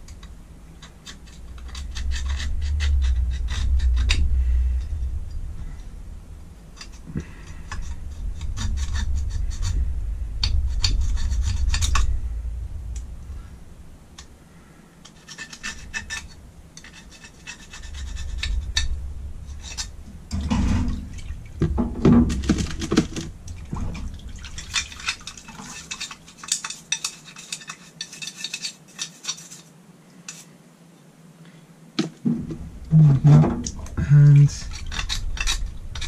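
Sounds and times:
toothbrush scrubbing metal part: 0.8 - 4.4, 6.8 - 9.8, 15.1 - 19.9, 24.4 - 29.7, 34.6 - 36.0
liquid sloshing: 19.6 - 26.8.

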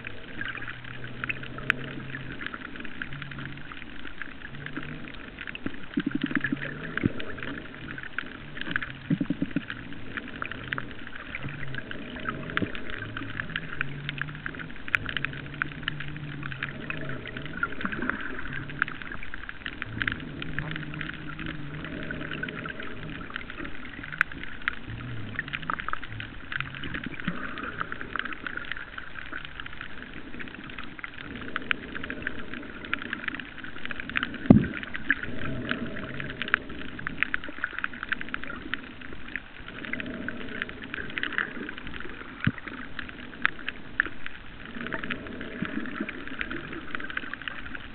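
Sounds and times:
crackle of tiny clicks: 0.0 - 47.9
low hum: 0.0 - 47.9.

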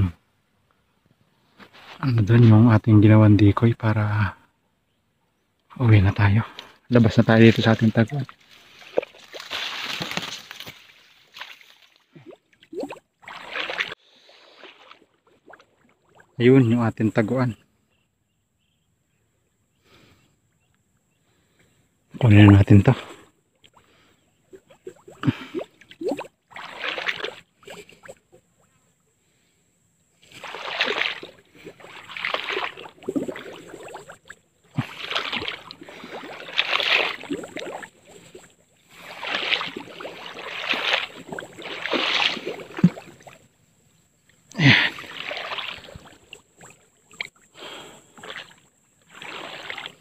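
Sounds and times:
legs wading through water: 7.0 - 16.4, 23.6 - 28.6, 30.2 - 50.0.

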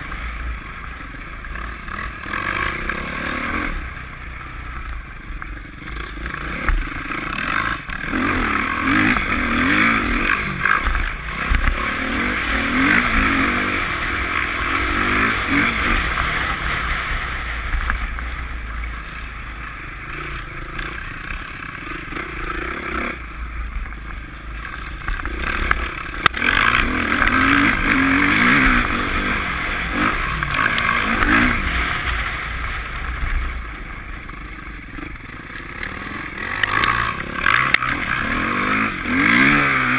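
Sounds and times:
dirt bike engines revving: 0.0 - 39.9.

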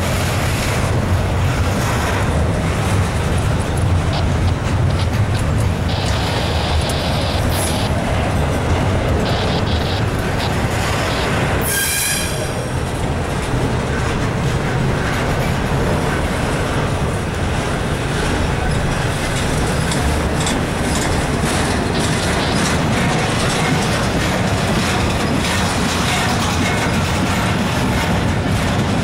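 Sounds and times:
freight train rolling past: 0.0 - 29.0
high-pitched wheel squeal: 11.2 - 12.6
wheels and couplings clanking: 12.9 - 29.0.

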